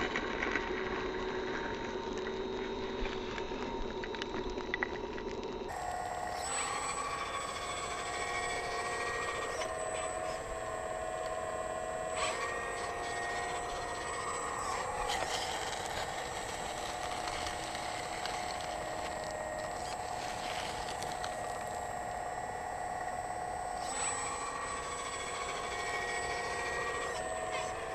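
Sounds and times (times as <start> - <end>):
hydraulic pump whining: 5.7 - 27.9.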